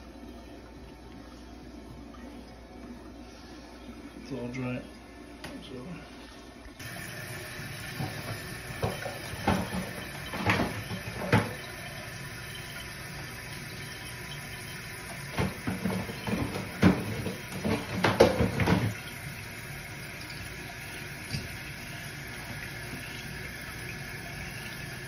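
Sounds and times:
water hissing into toilet tank: 6.4s - 25.0s.

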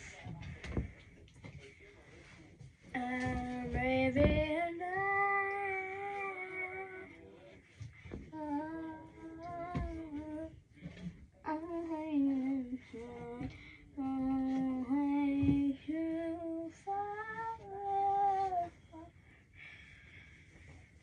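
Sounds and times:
girl singing unaccompanied: 2.9s - 7.2s, 8.2s - 10.6s, 11.4s - 19.1s.

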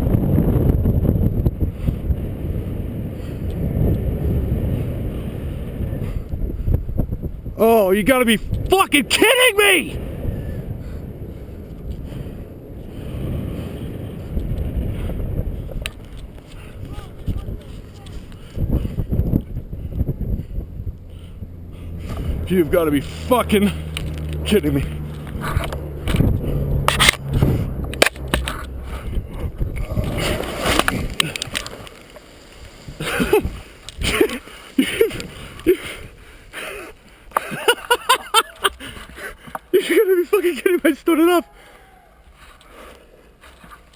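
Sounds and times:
wind buffeting microphone: 0.0s - 39.8s
branches crashing: 29.8s - 35.0s.

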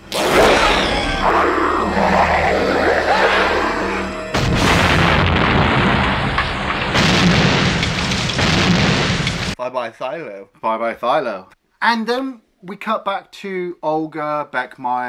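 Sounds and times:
explosion booms: 0.0s - 3.4s, 4.3s - 9.6s
film music: 0.0s - 8.4s
rumbling: 0.0s - 9.6s.

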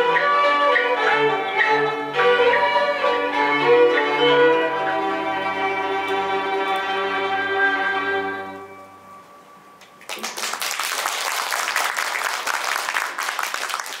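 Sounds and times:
instrument ensemble chord: 0.0s - 9.7s
audience applause: 10.0s - 14.0s.

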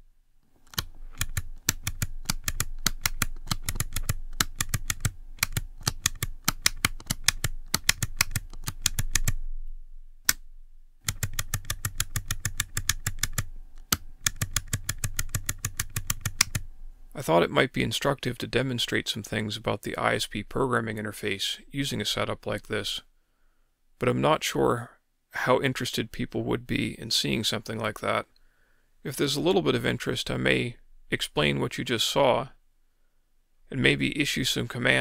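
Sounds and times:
toggle switches clicking: 0.6s - 9.4s.

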